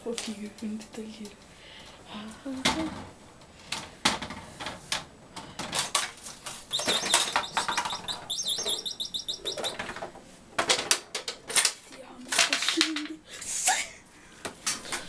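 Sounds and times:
plastic toys clicking and knocking: 3.7 - 13.2
fast high chirping rattle: 6.5 - 10.0.

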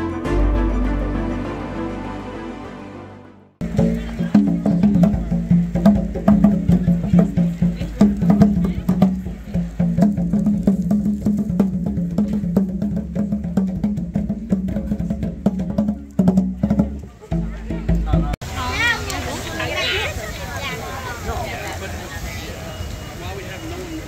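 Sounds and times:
hand drums played with hands: 3.6 - 18.4.

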